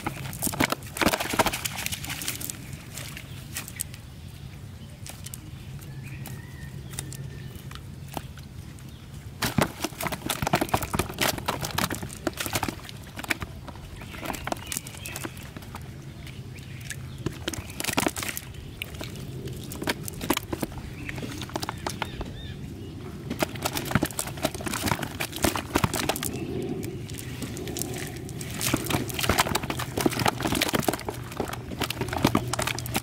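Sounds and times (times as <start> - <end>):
fish flapping and slapping: 0.0 - 4.1, 9.3 - 33.0
low hum: 1.6 - 33.0.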